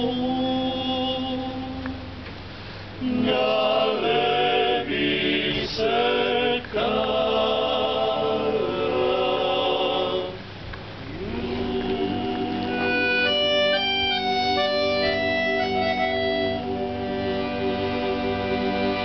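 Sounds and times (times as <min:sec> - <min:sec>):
male choir singing a cappella: 0:00.0 - 0:02.0, 0:03.0 - 0:10.5, 0:11.1 - 0:19.0
accordion: 0:11.2 - 0:19.0.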